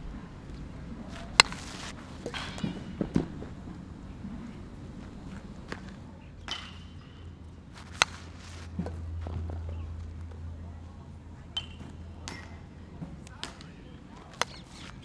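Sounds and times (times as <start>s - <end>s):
baseball bat cracking ball: 1.0s - 3.5s, 5.7s - 10.3s, 11.5s - 15.0s.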